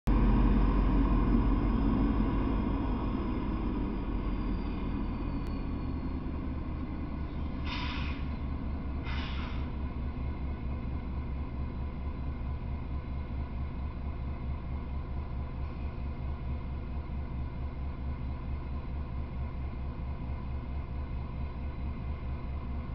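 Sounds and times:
diesel locomotive rumbling: 0.0s - 22.9s
air hissing: 7.5s - 8.4s, 9.0s - 9.8s.

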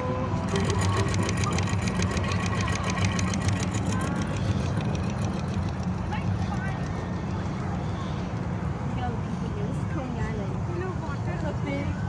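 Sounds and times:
steady low hum: 0.0s - 12.0s
rapid mechanical clicking: 0.4s - 8.7s.

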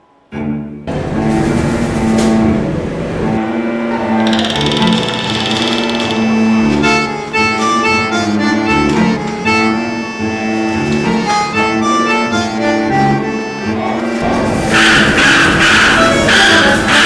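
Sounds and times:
background music melody: 1.7s - 17.0s.

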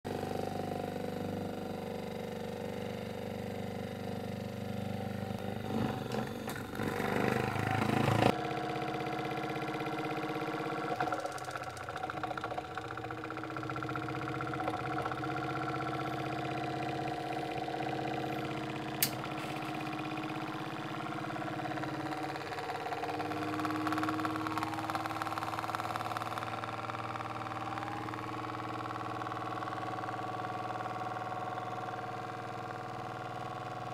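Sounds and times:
electric motor humming: 0.1s - 33.9s
sharp click: 19.0s - 19.7s.

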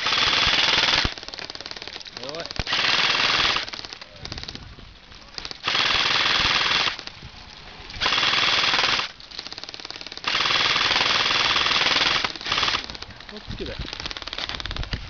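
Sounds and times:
bursts of rapid gunfire: 0.0s - 7.1s, 8.0s - 15.0s
faint rapid rattling fire: 0.0s - 15.0s.

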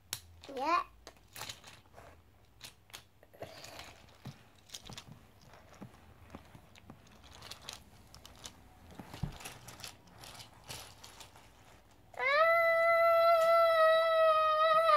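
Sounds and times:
plastic toy clicking and rattling: 0.1s - 5.5s, 7.0s - 8.6s.

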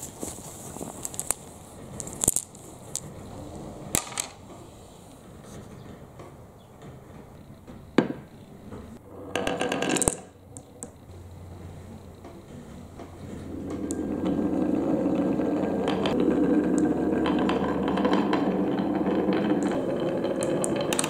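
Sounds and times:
wood scraping rattle: 9.1s - 10.3s, 12.2s - 21.0s.

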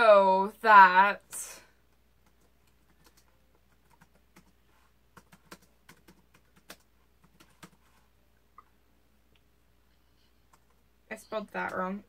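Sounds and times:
typing on laptop keyboard: 2.2s - 8.0s.

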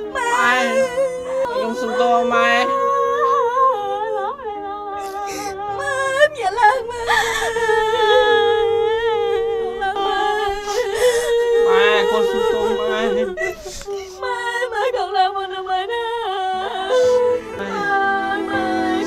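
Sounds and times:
woman crying: 0.0s - 3.4s, 5.0s - 15.0s, 16.8s - 17.8s
mournful singing: 0.0s - 19.0s.

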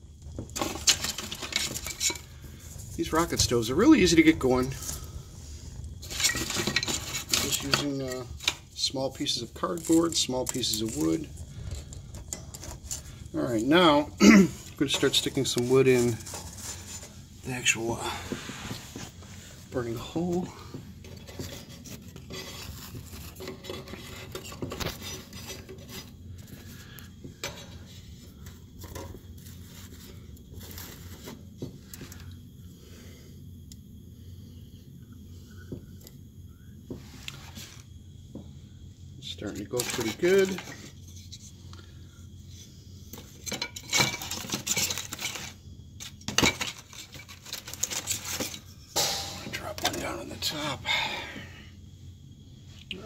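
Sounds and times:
wood scraping on metal and brick: 0.2s - 32.0s, 39.2s - 41.6s, 43.1s - 50.7s.

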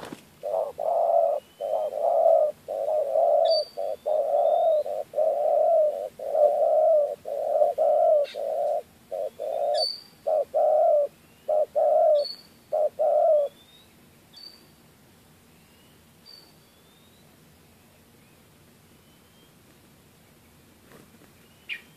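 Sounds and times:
dove cooing: 0.0s - 13.6s
small birds chirping and whistling: 0.5s - 14.6s.

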